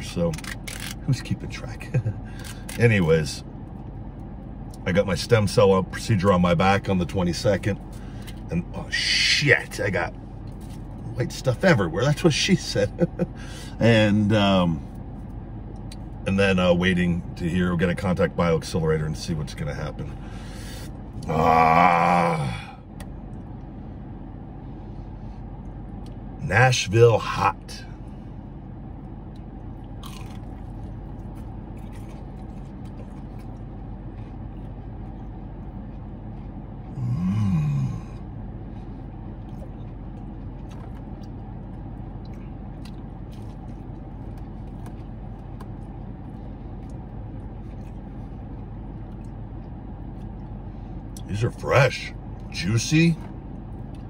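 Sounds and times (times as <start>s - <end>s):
low hum inside a car: 0.0s - 54.0s
man chewing crispy food: 7.0s - 13.8s, 28.0s - 51.4s, 52.1s - 54.0s
man groaning: 21.2s - 22.8s, 36.9s - 38.2s.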